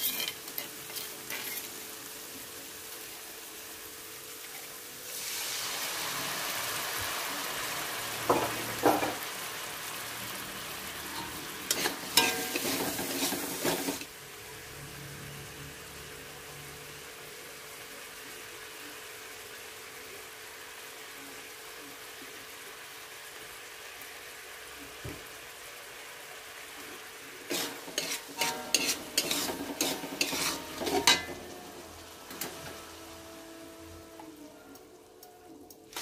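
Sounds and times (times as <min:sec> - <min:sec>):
metal spatula scraping wok: 0:00.0 - 0:01.8, 0:11.1 - 0:14.1, 0:27.4 - 0:34.2
paste sizzling in wok: 0:00.0 - 0:35.2, 0:35.8 - 0:36.0.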